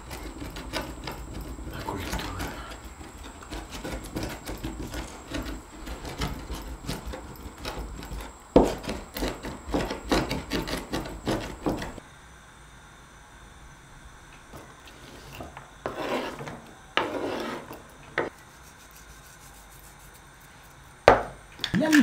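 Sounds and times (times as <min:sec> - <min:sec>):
knife chopping on wooden board: 0:02.1 - 0:12.0.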